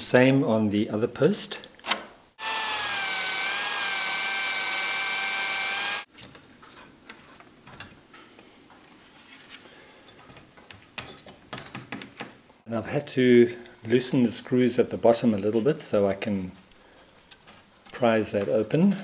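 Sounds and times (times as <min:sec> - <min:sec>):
electric drill whining: 0:02.4 - 0:06.1.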